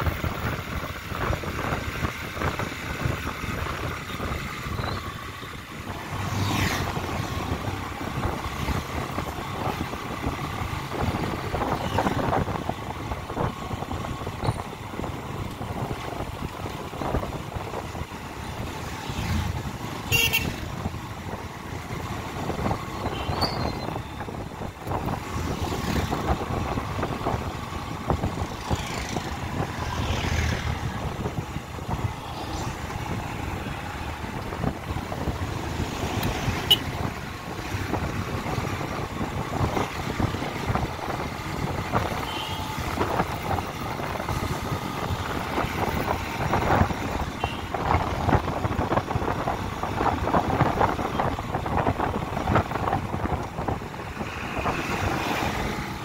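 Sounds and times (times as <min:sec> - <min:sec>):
motorcycle engine and road noise: 0:00.0 - 0:56.0
vehicles passing: 0:00.0 - 0:56.0
horn tooting: 0:20.0 - 0:20.6.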